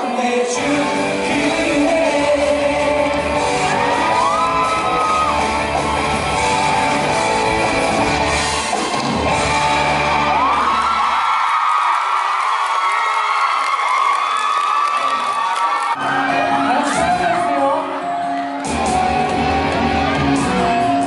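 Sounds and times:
lead singer singing: 0.0 - 5.6
live pop-rock band playing: 0.0 - 10.8, 16.0 - 21.0.

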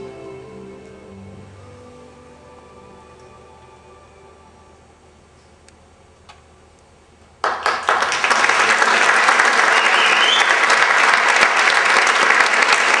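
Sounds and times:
audience applause: 7.4 - 13.0.

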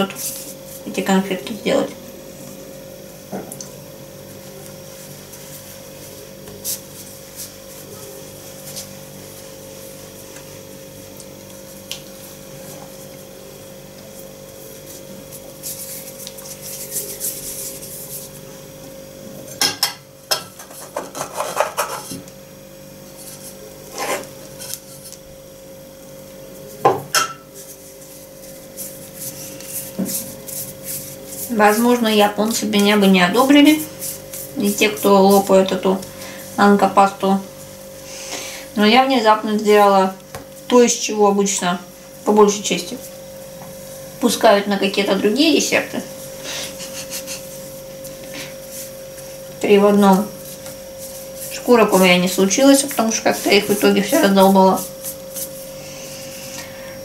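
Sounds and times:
steady low hum: 0.0 - 57.0
hands rubbing starch powder: 4.9 - 9.4, 14.2 - 18.5, 27.6 - 36.6, 46.1 - 55.9.

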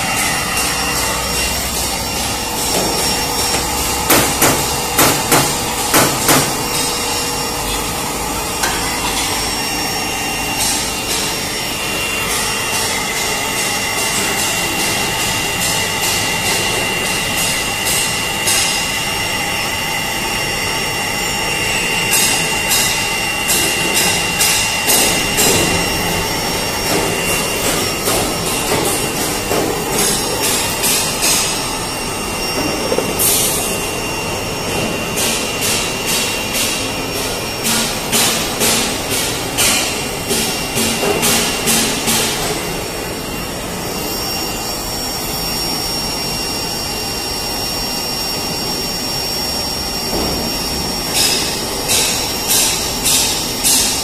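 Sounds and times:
spray dryer whine: 0.0 - 54.0
sharp knocks: 2.6 - 6.6.

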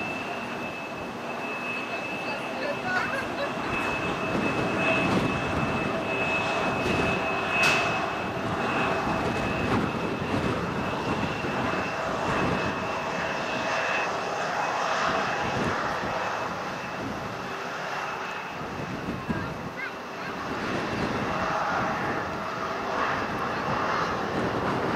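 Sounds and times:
jet engines in flight: 0.0 - 24.9.

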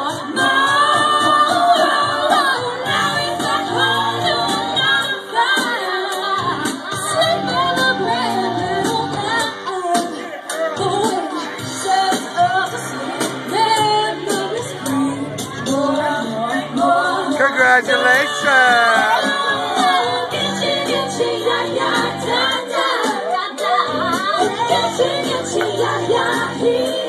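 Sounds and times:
woman singing karaoke: 0.0 - 18.4, 19.0 - 27.0
pop backing track with beat: 0.0 - 27.0.

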